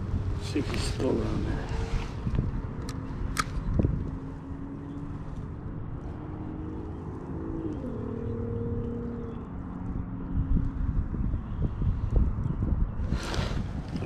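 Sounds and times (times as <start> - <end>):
wind rumbling on microphone: 0.0 - 14.0
sharp clicks: 2.8 - 4.2.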